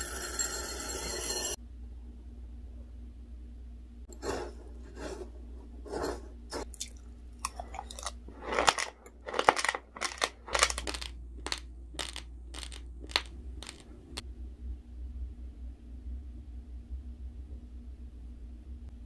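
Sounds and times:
chewing crunchy rice grains: 6.6 - 13.8.

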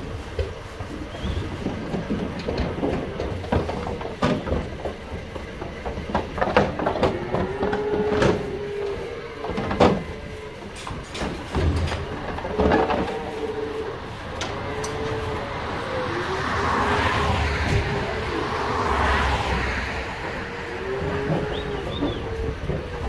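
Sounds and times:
knocks against metal truck sides: 1.2 - 13.3, 16.7 - 23.0
calf bawling: 20.6 - 23.0.

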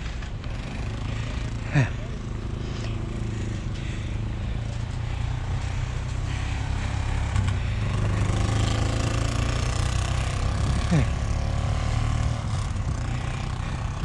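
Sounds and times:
vehicle engine idling: 0.0 - 9.4.

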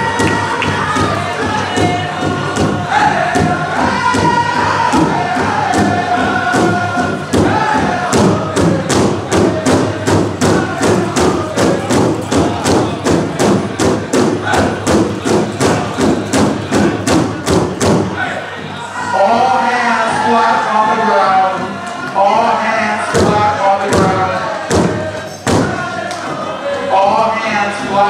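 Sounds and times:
steady drum beat: 0.0 - 18.4, 23.0 - 26.4
singers chanting: 0.0 - 28.0.

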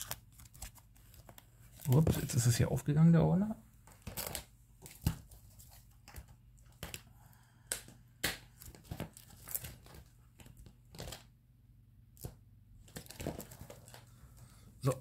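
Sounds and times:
plastic binder pages crinkling: 0.0 - 2.6, 3.8 - 11.4, 12.2 - 14.6.

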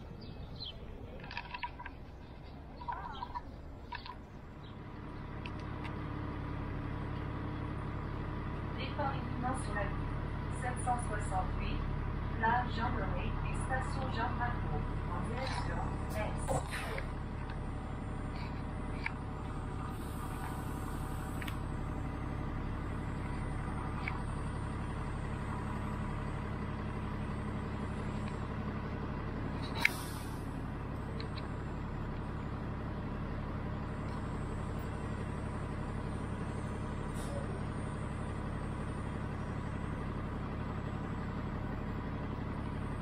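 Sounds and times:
bus engine hum: 0.0 - 43.0
air brake hiss: 29.8 - 30.5.

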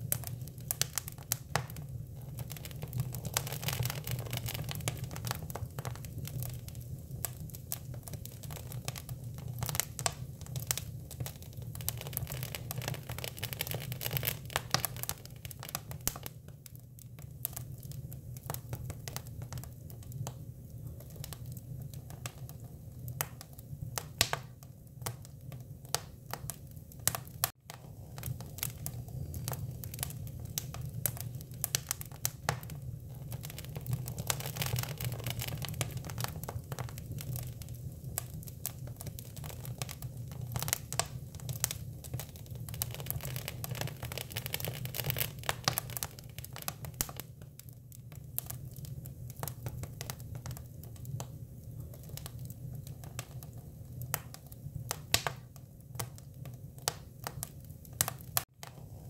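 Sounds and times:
wood fire crackling and popping: 0.0 - 59.0
fire hiss: 27.0 - 39.2.

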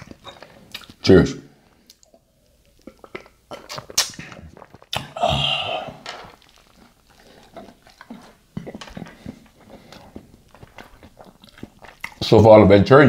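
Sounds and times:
chewing mouth clicks: 0.0 - 1.0, 1.9 - 5.1, 6.2 - 12.2
man drinking from a glass: 2.0 - 12.2
breathy ahh: 5.0 - 6.2.

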